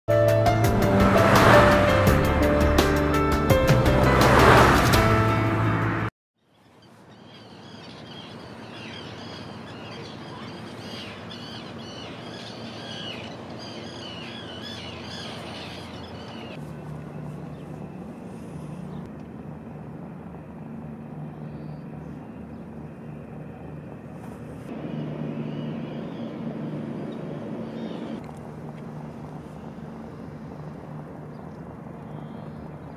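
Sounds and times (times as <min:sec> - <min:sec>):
harbour background noise: 0:06.5 - 0:32.9
gulls calling: 0:06.9 - 0:19.1, 0:24.7 - 0:28.2
steady low hum: 0:08.2 - 0:32.9.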